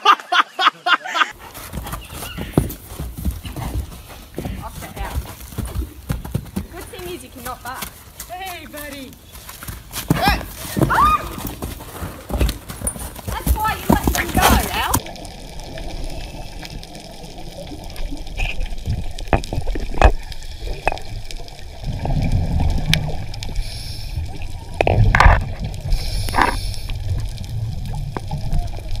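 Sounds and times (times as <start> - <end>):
low underwater rumble: 15.0 - 29.0
regulator bubbling underwater: 15.0 - 29.0.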